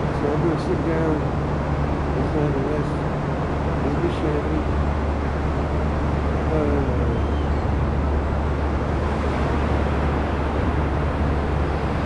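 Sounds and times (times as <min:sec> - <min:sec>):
ocean surf rushing: 0:00.0 - 0:12.0
wind rumble on microphone: 0:00.0 - 0:12.0.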